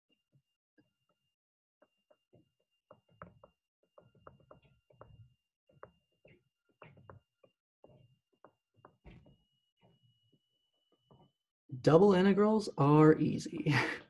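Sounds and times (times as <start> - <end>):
stylus tapping on tablet: 0.8 - 10.0.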